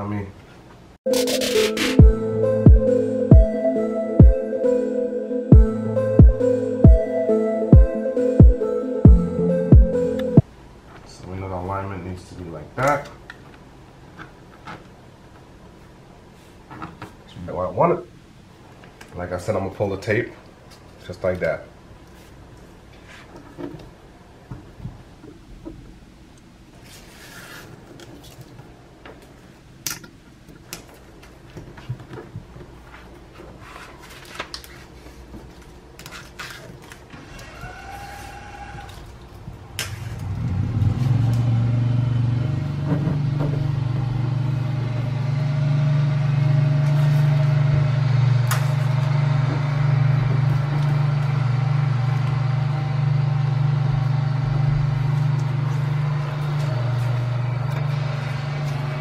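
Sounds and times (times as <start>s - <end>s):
low mechanical drone: 39.5s - 59.0s.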